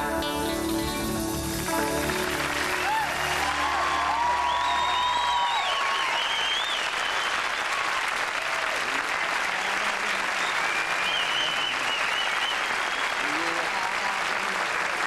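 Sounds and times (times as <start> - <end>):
band playing final chord: 0.0 - 4.4
audience applauding and cheering: 0.0 - 15.0.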